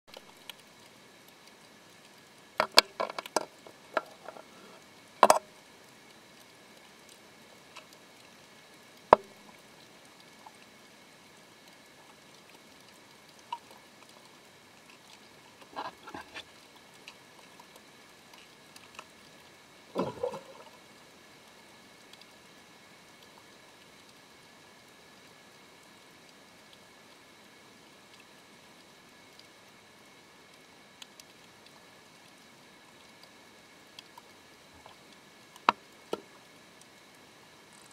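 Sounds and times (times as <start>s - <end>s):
underwater clicks and knocks: 2.6s - 4.5s, 5.2s - 5.5s, 15.6s - 16.5s, 20.0s - 20.8s.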